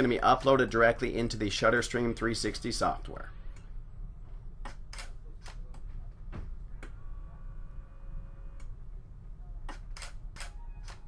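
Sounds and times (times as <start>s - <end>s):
low hum: 0.0s - 11.0s
faint motor whine: 5.7s - 9.8s.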